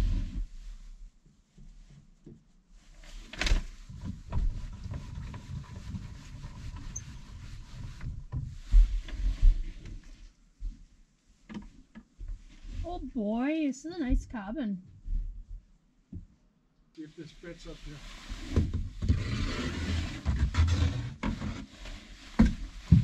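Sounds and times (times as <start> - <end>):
knocks and bumps on plywood floor: 22.4 - 23.0.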